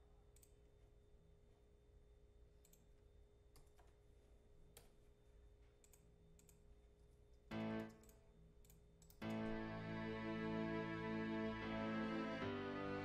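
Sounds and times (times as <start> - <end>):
computer mouse clicks: 2.6 - 2.9, 3.5 - 4.0, 5.8 - 6.7, 7.8 - 9.4
string section chord: 7.5 - 8.0, 9.2 - 13.0.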